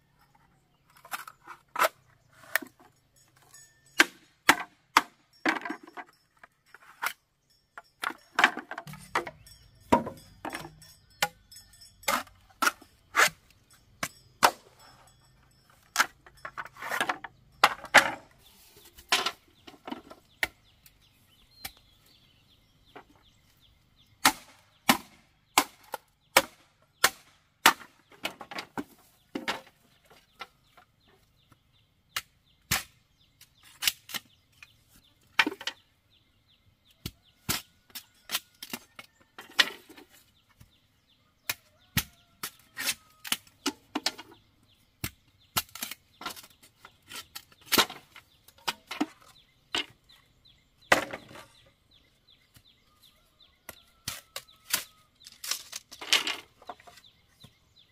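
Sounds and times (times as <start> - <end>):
bamboo being chopped: 4.0 - 5.7, 24.2 - 29.7, 32.1 - 34.7, 37.0 - 38.9, 41.5 - 44.3, 45.0 - 49.9, 53.7 - 57.6.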